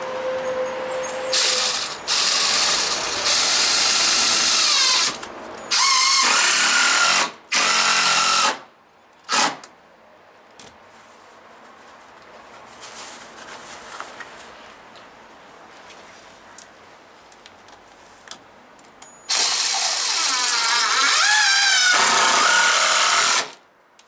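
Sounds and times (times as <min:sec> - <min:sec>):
cordless drill driving screws: 0:01.3 - 0:08.6, 0:19.3 - 0:23.6.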